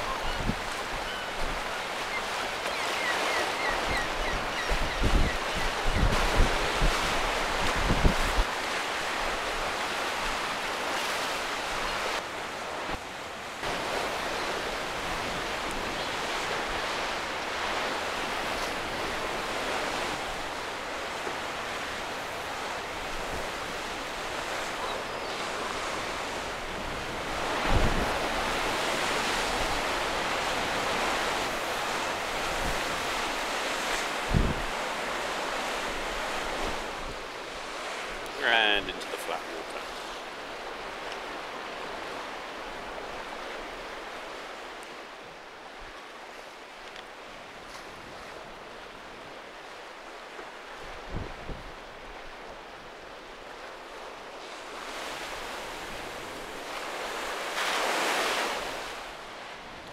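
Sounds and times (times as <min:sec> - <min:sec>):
wind buffeting microphone: 0:04.0 - 0:08.5, 0:34.1 - 0:35.0.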